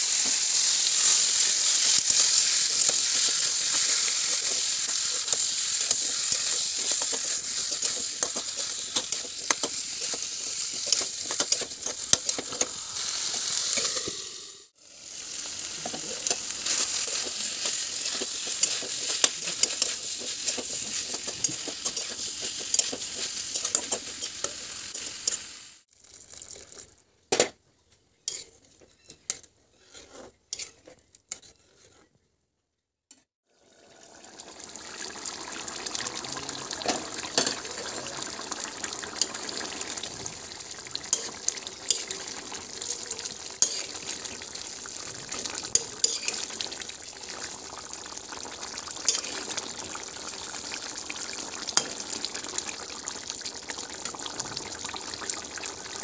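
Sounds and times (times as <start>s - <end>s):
curry bubbling and sizzling: 0.0s - 27.0s, 33.4s - 56.0s
ladle tapping pan: 2.1s - 12.7s, 36.8s - 37.9s.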